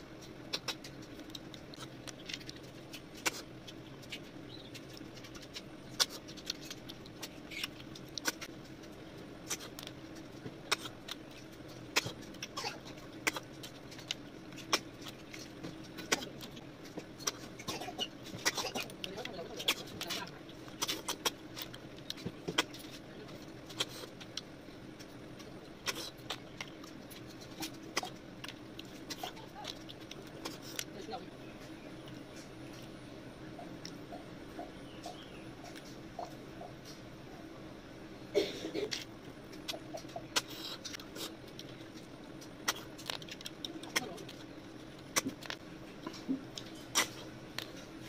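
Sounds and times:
low steady hum: 0.0s - 48.0s
mouth clicks and smacks chewing: 0.1s - 30.9s.

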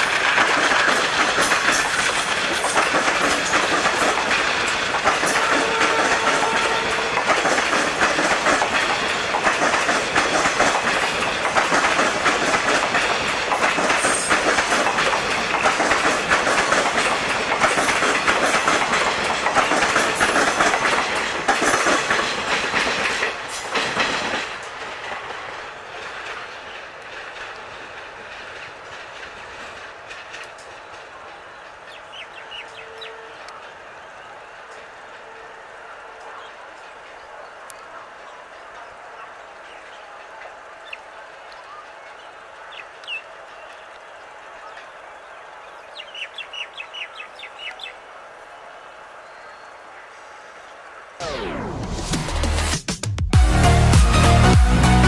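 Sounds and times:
train wheels clattering over rail joints: 0.0s - 33.8s.

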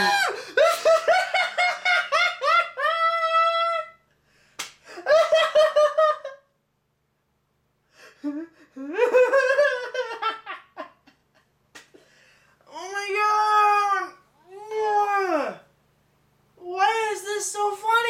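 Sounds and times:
man laughing hard: 0.0s - 3.9s, 4.9s - 6.4s, 8.1s - 11.4s
sharp smack: 4.6s - 4.8s.

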